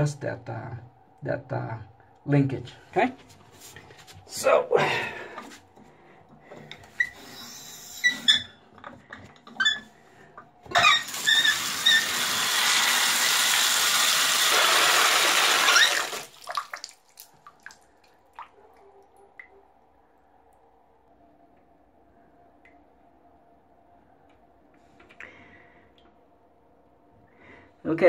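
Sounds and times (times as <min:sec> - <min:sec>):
water pouring into bathtub: 0:10.8 - 0:18.6.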